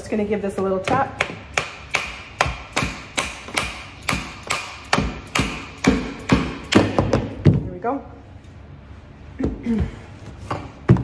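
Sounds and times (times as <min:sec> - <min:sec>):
mallet striking wooden joint: 0:00.9 - 0:07.4.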